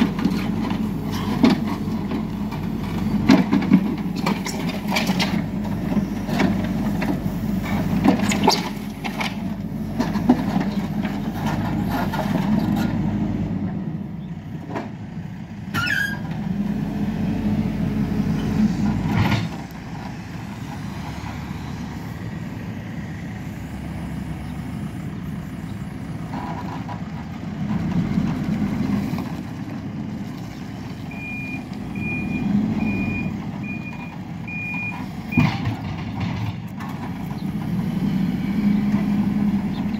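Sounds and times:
diesel engine under load: 0:00.0 - 0:39.9
reversing alarm beeping: 0:31.1 - 0:35.6.

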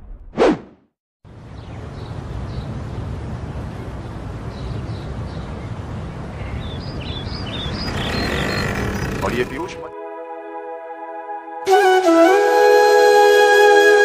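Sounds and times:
road traffic rumble: 0:01.3 - 0:09.9
birds chirping: 0:01.5 - 0:09.9.

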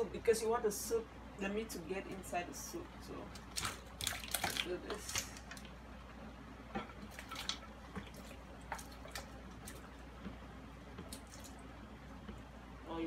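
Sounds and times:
soft clicks and splashes: 0:06.8 - 0:12.5.

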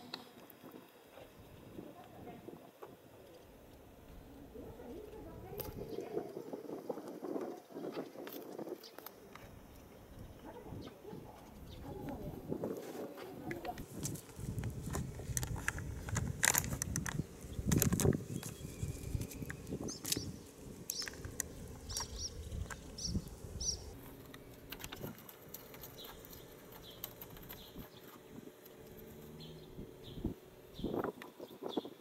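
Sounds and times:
small bird chirping: 0:13.5 - 0:32.0.

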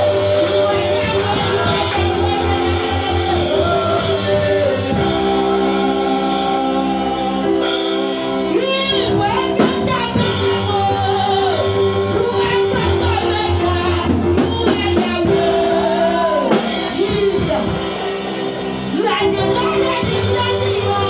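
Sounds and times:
amplified backing music: 0:00.0 - 0:21.0.

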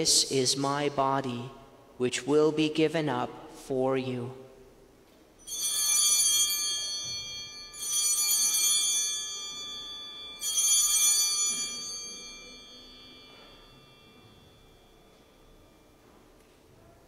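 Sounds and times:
altar bells ringing: 0:05.4 - 0:16.5.

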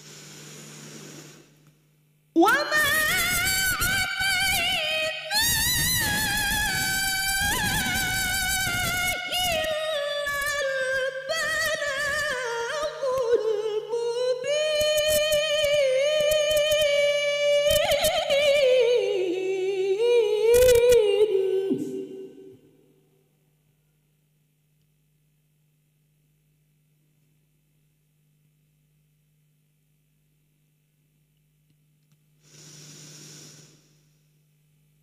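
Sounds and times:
woman reciting melodically: 0:02.4 - 0:22.5.

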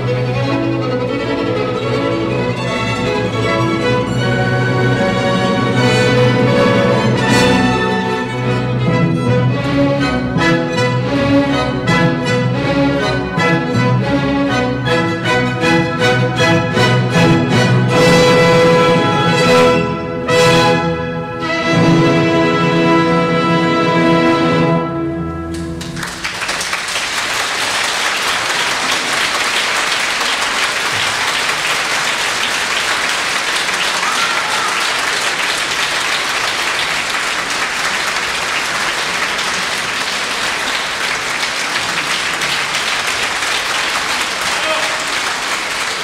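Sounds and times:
audience applause: 0:25.5 - 0:46.0.

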